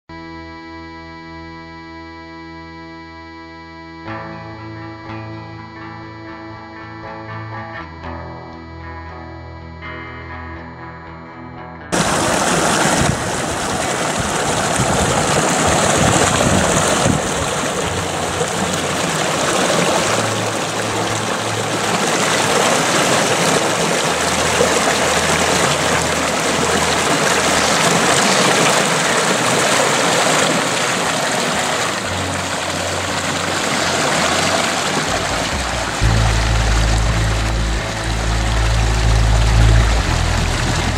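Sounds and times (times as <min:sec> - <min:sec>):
creek water rushing and babbling: 0:12.0 - 0:40.9
low rumble: 0:35.0 - 0:40.9.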